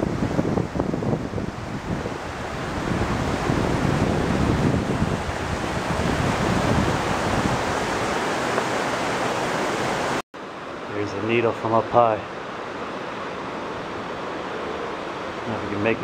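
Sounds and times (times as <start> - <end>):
wind buffeting microphone: 0.0 - 10.2
rushing stream water: 0.0 - 16.0.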